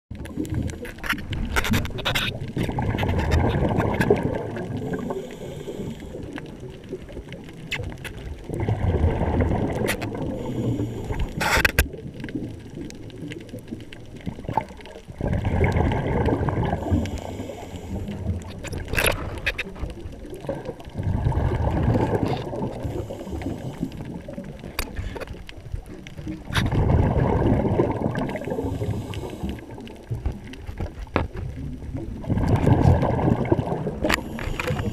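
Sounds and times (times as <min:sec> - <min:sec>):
exhaled bubbles bursting: 0:00.1 - 0:34.9
scuba regulator breathing: 0:04.6 - 0:06.5, 0:10.2 - 0:11.7, 0:16.6 - 0:19.5, 0:22.2 - 0:25.3, 0:28.2 - 0:30.1, 0:34.0 - 0:34.9.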